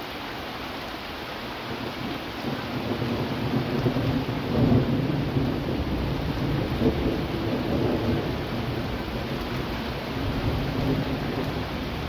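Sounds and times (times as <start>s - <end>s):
rain pouring: 0.0s - 12.0s.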